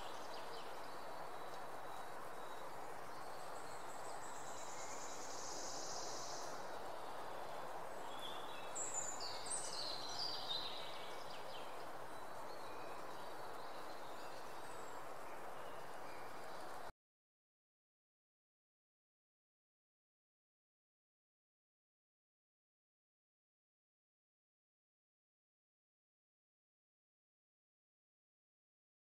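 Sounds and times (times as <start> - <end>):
outdoor background hiss: 0.0 - 16.9
songbird trill: 0.0 - 16.9.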